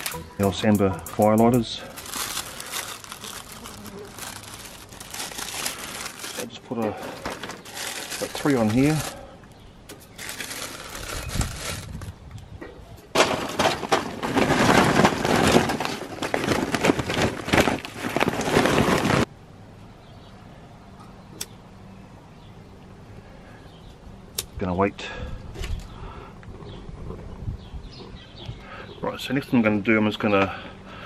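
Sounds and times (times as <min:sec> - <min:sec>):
paper bag rustling: 0:00.0 - 0:00.5, 0:01.6 - 0:09.3, 0:10.1 - 0:12.1, 0:13.1 - 0:19.3
charcoal clattering into metal: 0:13.1 - 0:19.3.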